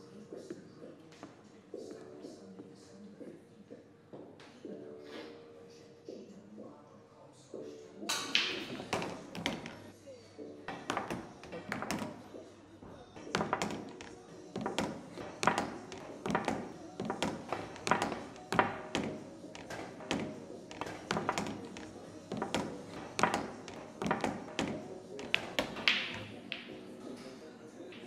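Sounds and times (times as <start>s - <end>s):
music: 0.0s - 28.0s.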